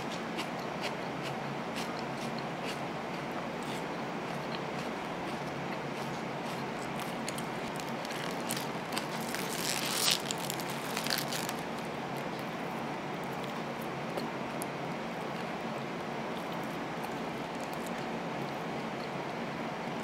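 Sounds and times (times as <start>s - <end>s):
steady background hiss: 0.0s - 20.0s
foil wrapper crinkling: 7.5s - 11.9s.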